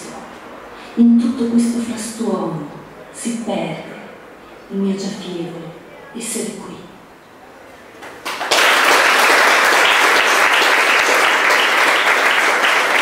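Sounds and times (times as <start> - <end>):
audience applauding: 8.0 - 13.0.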